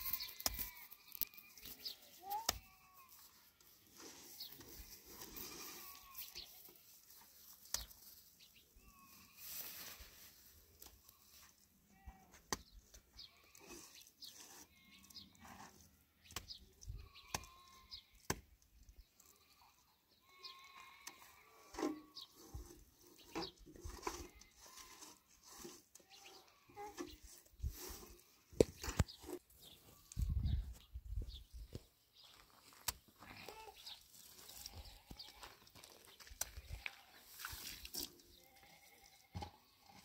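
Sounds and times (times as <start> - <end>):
faint livestock bleating: 0.0 - 4.4, 5.1 - 7.0, 8.8 - 10.3, 11.0 - 12.4, 13.0 - 18.3, 19.1 - 22.5, 23.4 - 25.3, 25.9 - 28.6, 33.2 - 35.7, 36.5 - 37.4, 38.3 - 40.0.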